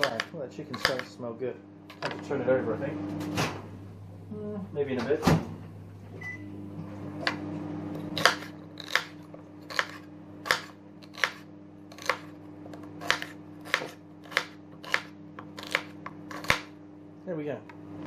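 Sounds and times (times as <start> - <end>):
knife chopping on board: 0.0 - 1.1, 8.0 - 16.8.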